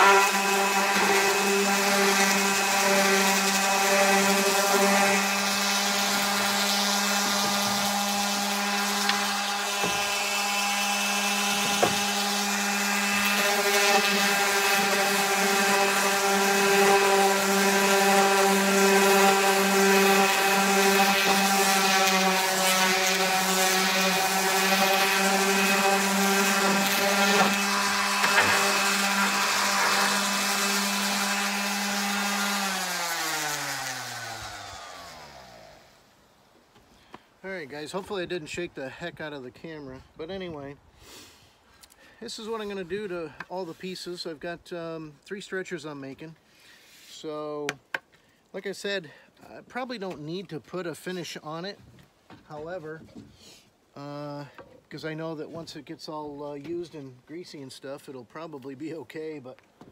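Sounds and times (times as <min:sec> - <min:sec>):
orbital sander on wood: 0:00.0 - 0:36.2, 0:42.2 - 0:51.8.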